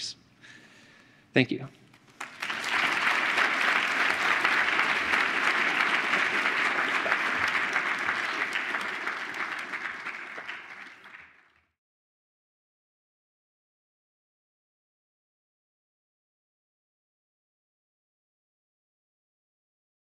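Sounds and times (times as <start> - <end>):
audience clapping: 2.0 - 11.8.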